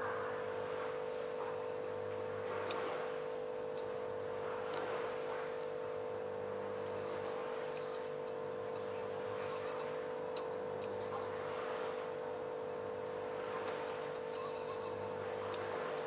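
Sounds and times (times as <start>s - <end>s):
steady hum: 0.0s - 16.0s
faint light ticks: 2.6s - 2.9s, 3.7s - 4.0s, 5.6s - 5.8s, 6.7s - 11.3s, 15.4s - 16.0s.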